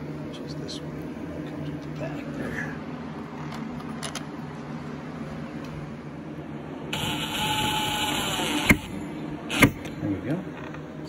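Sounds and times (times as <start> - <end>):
drill click stopping: 7.0 - 8.9
cordless drill whine: 7.0 - 9.8.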